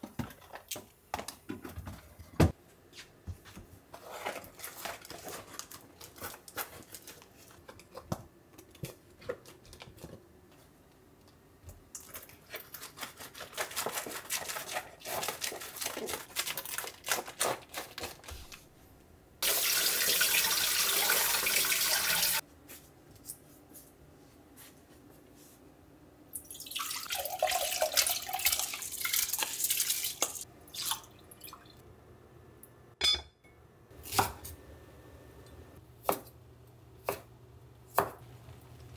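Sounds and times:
faucet running water: 19.4 - 22.4, 26.4 - 31.8.

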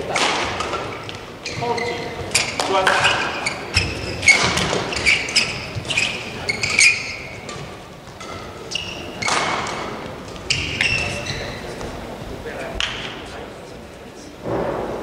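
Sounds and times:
shoes squeaking on court: 0.1 - 12.0.

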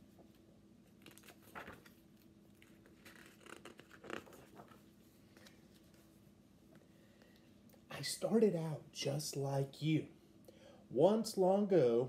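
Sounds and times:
book being handled: 0.2 - 6.3.

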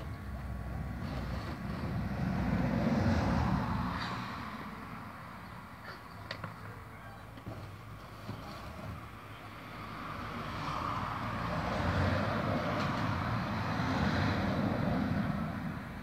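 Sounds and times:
vehicle passing by: 0.8 - 5.1, 9.5 - 15.9.

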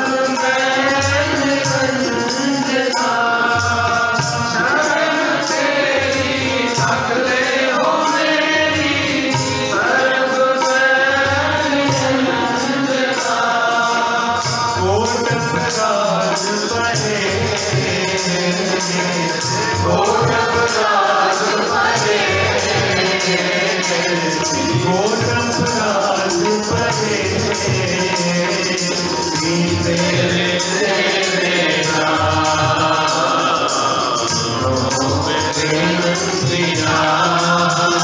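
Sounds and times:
harmonium melody: 0.0 - 38.0
tabla drums: 0.0 - 38.0.

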